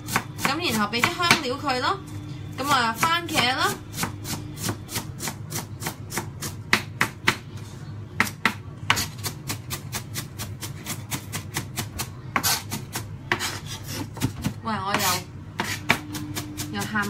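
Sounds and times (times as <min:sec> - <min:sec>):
knife chopping on cutting board: 0:03.9 - 0:07.5, 0:08.2 - 0:17.0.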